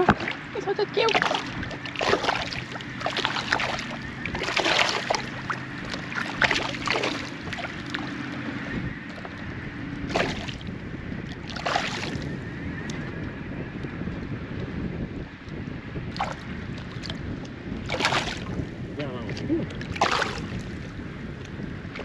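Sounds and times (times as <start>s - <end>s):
low hum: 0.0s - 22.0s
fish splashing at water surface: 1.1s - 8.1s, 10.1s - 10.6s, 11.5s - 12.2s, 17.9s - 18.5s, 19.9s - 20.7s.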